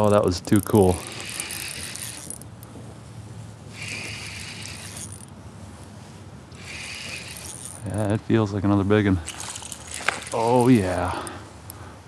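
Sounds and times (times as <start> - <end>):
fishing reel whirring: 0.0 - 2.6, 3.7 - 5.3, 6.5 - 8.0, 9.2 - 11.3.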